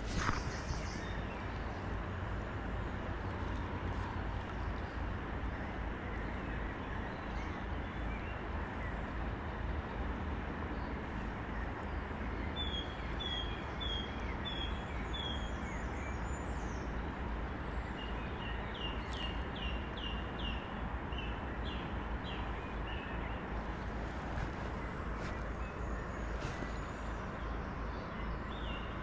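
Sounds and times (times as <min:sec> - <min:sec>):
small songbird calling: 0:00.0 - 0:01.8, 0:11.6 - 0:16.9
steady rushing noise: 0:00.0 - 0:04.4, 0:23.5 - 0:27.9.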